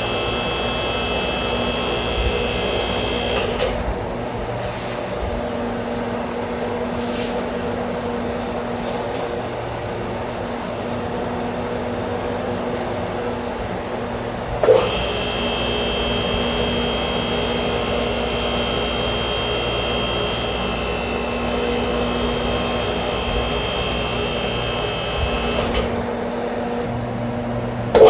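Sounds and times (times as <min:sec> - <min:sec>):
hydraulic power unit running: 0:00.0 - 0:05.4, 0:13.4 - 0:27.2.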